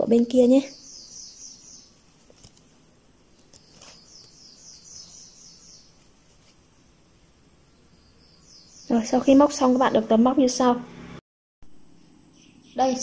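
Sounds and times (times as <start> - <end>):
high-pitched bird trill: 0.4 - 2.0, 12.3 - 13.0.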